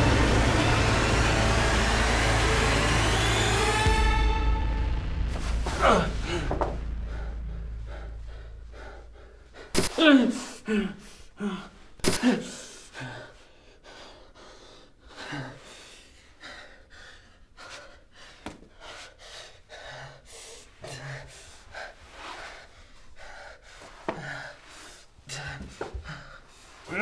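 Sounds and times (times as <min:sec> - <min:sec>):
person breathing hard: 0:05.4 - 0:27.0
person grunting: 0:05.6 - 0:06.8, 0:09.8 - 0:13.2.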